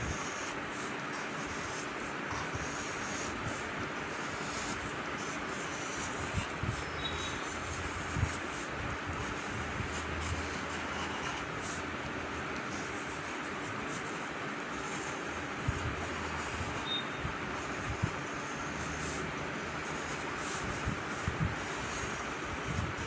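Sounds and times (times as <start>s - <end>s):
pencil scratching on paper: 0.0s - 11.9s, 12.6s - 23.0s.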